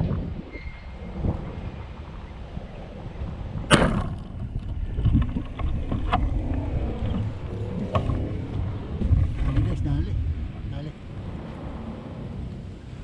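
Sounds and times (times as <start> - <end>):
wind noise on microphone: 0.0 - 13.0
handling noise on microphone: 3.7 - 10.1.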